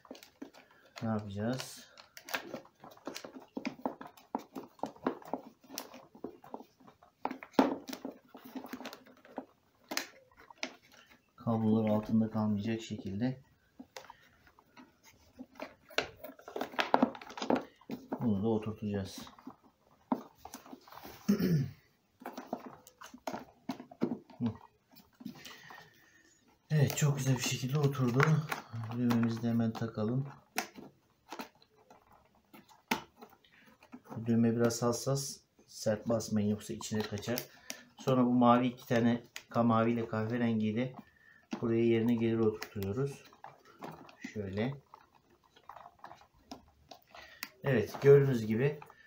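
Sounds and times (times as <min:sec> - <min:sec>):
plastic clicks and knocks: 0:00.0 - 0:26.0, 0:26.7 - 0:34.9.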